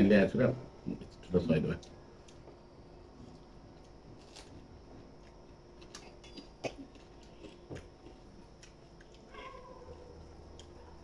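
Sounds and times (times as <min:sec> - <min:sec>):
chewing: 0:05.2 - 0:11.0.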